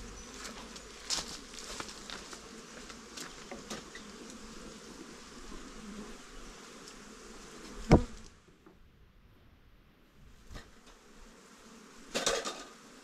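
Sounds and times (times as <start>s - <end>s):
bees buzzing: 0.0s - 8.4s.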